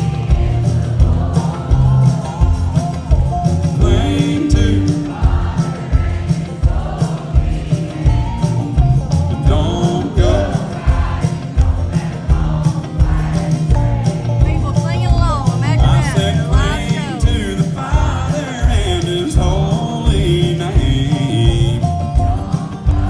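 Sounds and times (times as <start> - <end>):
man singing: 0.0 - 6.2, 8.3 - 11.0, 14.6 - 23.0
steady drum beat: 0.0 - 23.0
strummed acoustic guitar: 0.0 - 23.0.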